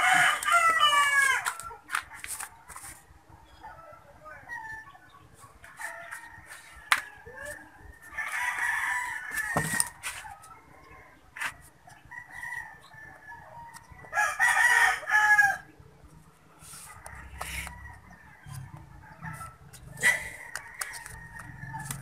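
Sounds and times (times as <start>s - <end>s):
rooster crowing: 0.0s - 1.6s, 5.8s - 9.9s, 12.1s - 15.7s.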